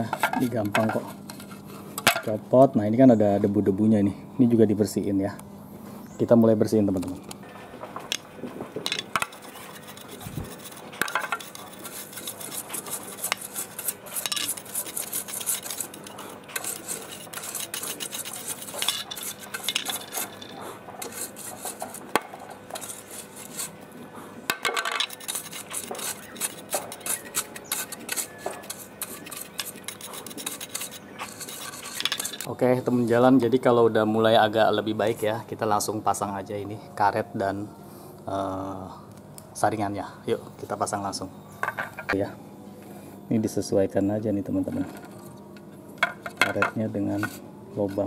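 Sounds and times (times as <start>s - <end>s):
brush scrubbing plastic: 9.1s - 23.8s, 25.0s - 32.5s.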